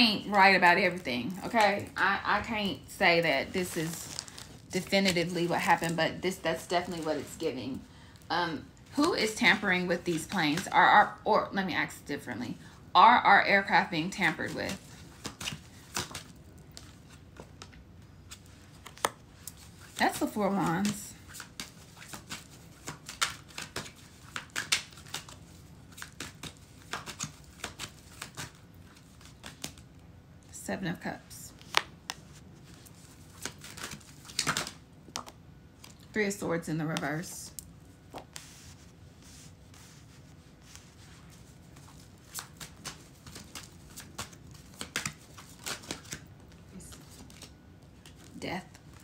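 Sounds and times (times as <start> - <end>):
cards being shuffled: 14.1 - 29.9, 31.5 - 36.1, 36.9 - 49.0.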